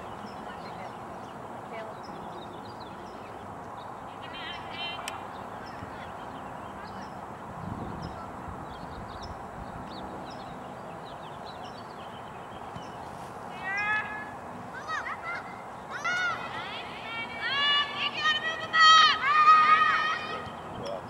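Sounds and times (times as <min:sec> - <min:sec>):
outdoor background haze: 0:00.0 - 0:21.0
loud high-pitched shout: 0:14.8 - 0:20.5.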